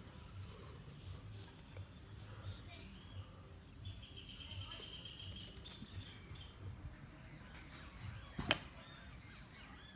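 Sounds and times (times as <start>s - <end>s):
bird chirps: 2.5s - 9.9s.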